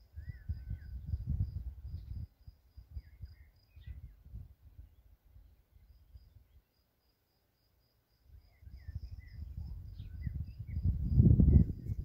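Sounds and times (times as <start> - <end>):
wind buffeting microphone: 0.0 - 5.5, 8.4 - 12.0
bird chirps: 2.9 - 4.2, 8.4 - 12.0.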